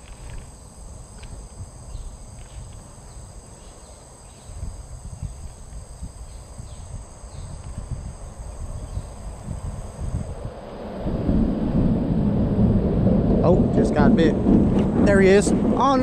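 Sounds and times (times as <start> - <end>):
insect chorus droning: 0.0 - 16.0
wind rumble on microphone: 0.0 - 16.0.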